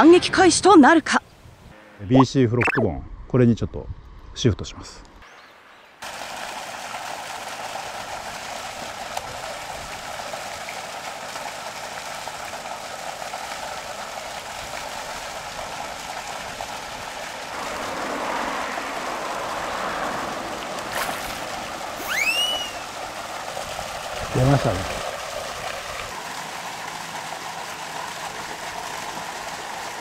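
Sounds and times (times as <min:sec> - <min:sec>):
water pouring from pipe into creek: 0:06.0 - 0:30.0.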